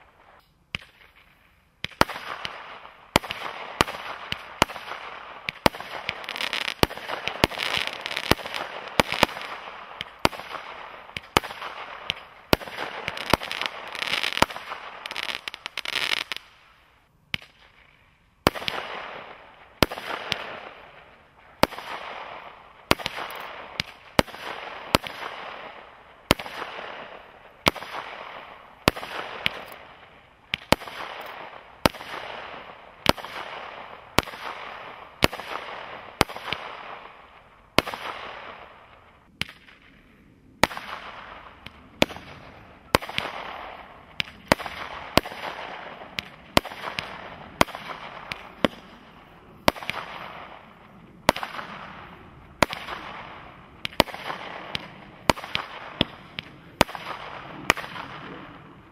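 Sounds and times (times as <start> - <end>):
firework crackling hiss: 0.0 - 37.1
firework shot bangs: 40.6 - 50.6.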